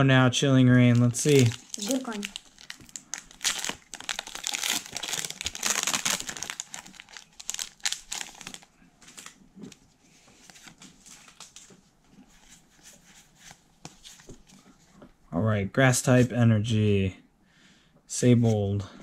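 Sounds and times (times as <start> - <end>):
foil wrapper crinkling and tearing: 0.9 - 9.4.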